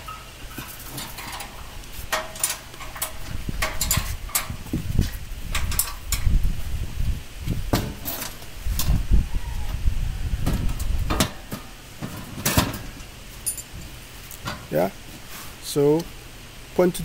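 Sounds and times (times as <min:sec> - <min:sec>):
metal knocks and clanks: 0:00.0 - 0:04.8, 0:07.7 - 0:08.4, 0:10.4 - 0:14.7.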